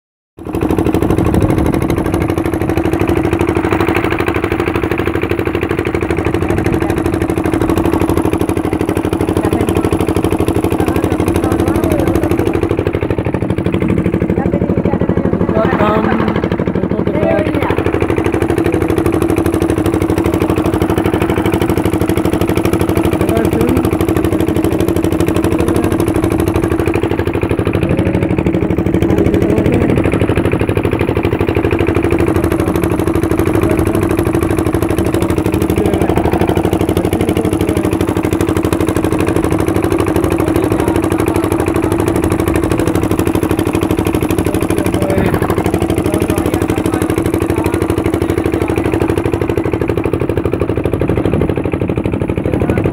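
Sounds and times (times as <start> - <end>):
boat engine humming: 0.4 - 52.9.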